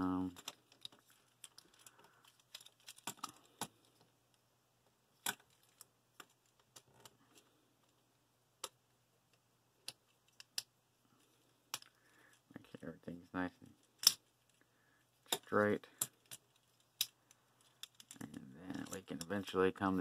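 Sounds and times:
plastic toy clicks and snaps: 0:14.0 - 0:14.2.

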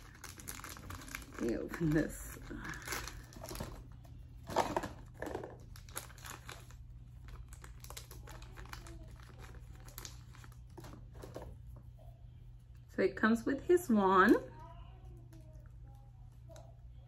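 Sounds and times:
plastic bag crinkling: 0:00.0 - 0:11.6.

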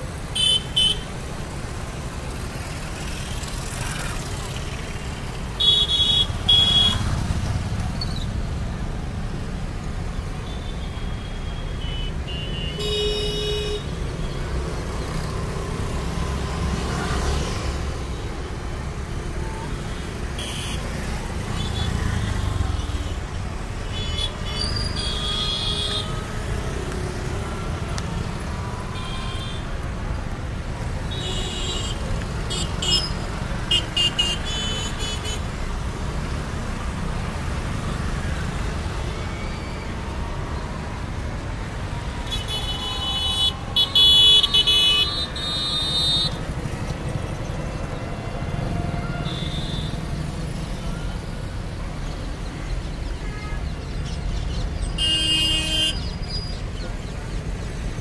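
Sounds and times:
road traffic of motorbikes and cars: 0:00.0 - 0:58.0.

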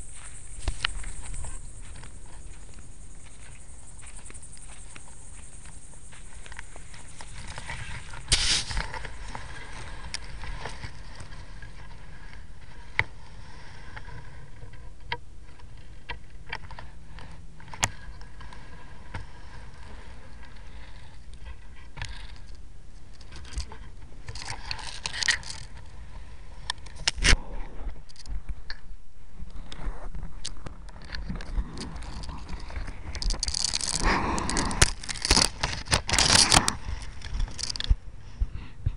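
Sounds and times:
camera rig rattling and scraping: 0:23.2 - 0:25.8, 0:31.0 - 0:37.9.

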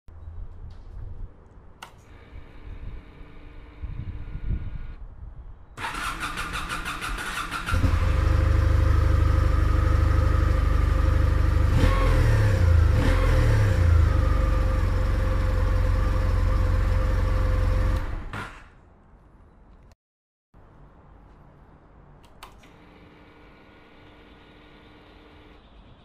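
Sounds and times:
engine revving: 0:05.8 - 0:18.3
motorcycle engine idling: 0:07.3 - 0:11.7, 0:14.1 - 0:17.9.

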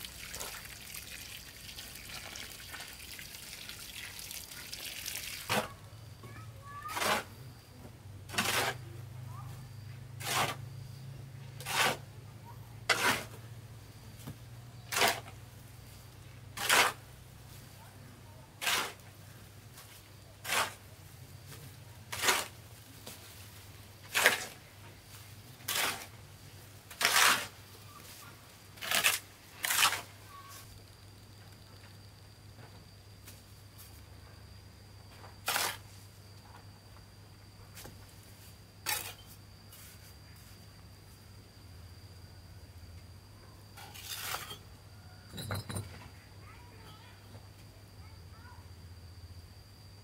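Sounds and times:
hoe scraping through wet mortar: 0:05.4 - 0:05.8, 0:06.8 - 0:07.4, 0:08.3 - 0:08.8, 0:10.2 - 0:10.7, 0:11.6 - 0:12.0, 0:12.9 - 0:13.4, 0:14.8 - 0:15.4, 0:16.5 - 0:17.1, 0:18.6 - 0:19.1, 0:19.8 - 0:20.9, 0:22.1 - 0:22.6, 0:24.0 - 0:24.6, 0:25.7 - 0:26.2, 0:26.9 - 0:27.6, 0:28.8 - 0:30.2, 0:35.4 - 0:36.0, 0:38.8 - 0:40.0, 0:43.8 - 0:44.6.

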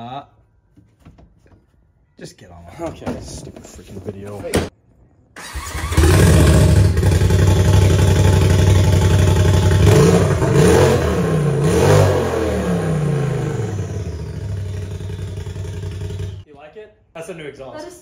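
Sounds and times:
off-road vehicle engine revving: 0:05.5 - 0:16.4.

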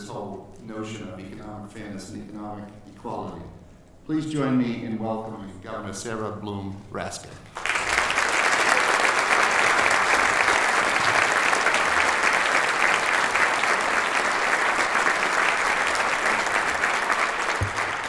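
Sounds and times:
audience applauding: 0:07.5 - 0:18.0.

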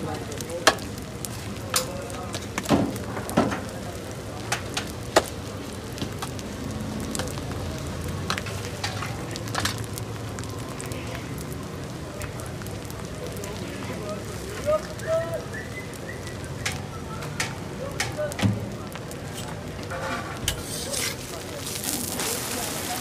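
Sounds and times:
food sizzling on a griddle: 0:00.0 - 0:23.0
steel utensils clinking: 0:19.3 - 0:21.3.

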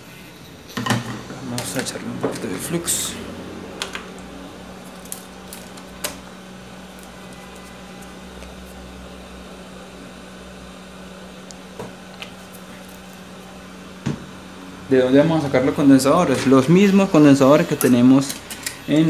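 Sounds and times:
low electrical hum of equipment: 0:00.0 - 0:19.0.

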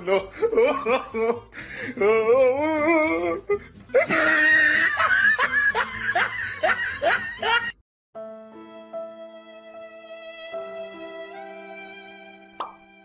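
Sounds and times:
person laughing hard: 0:00.0 - 0:01.8, 0:03.5 - 0:07.8
soft music with held notes: 0:08.2 - 0:13.0.

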